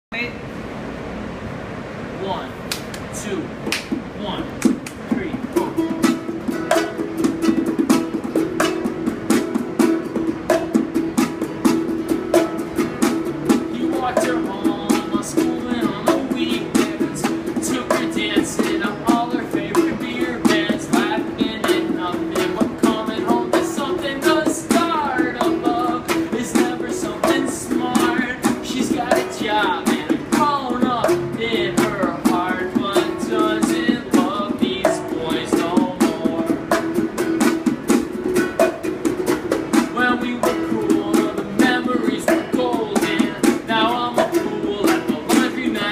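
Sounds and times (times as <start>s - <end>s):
acoustic guitar strumming: 3.6s - 45.9s
man singing: 5.1s - 6.9s, 13.4s - 37.0s, 39.7s - 45.9s.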